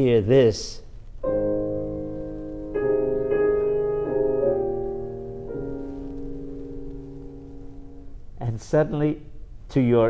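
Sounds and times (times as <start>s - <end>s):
piano chords: 1.2s - 8.4s.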